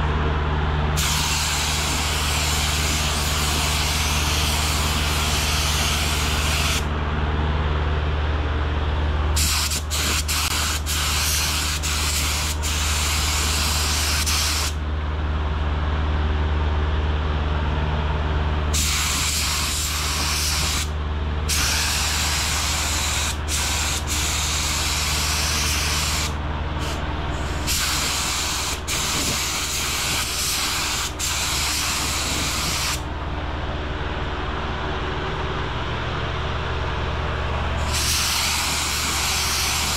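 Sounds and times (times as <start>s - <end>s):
steady low hum: 0.0s - 39.9s
spray gun air hissing: 1.0s - 6.9s, 9.4s - 14.8s, 18.7s - 20.9s, 21.5s - 33.1s, 37.8s - 39.9s.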